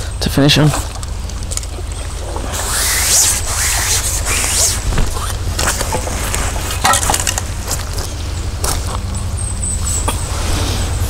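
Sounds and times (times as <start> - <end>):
fish splashing in a net: 0.8 - 6.8.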